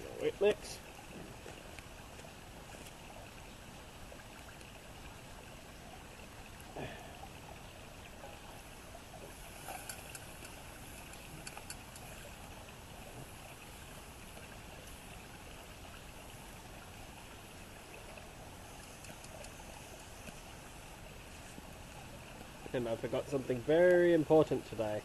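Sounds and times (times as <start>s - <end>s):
light clicks and rustles: 9.6s - 12.2s, 18.7s - 20.4s.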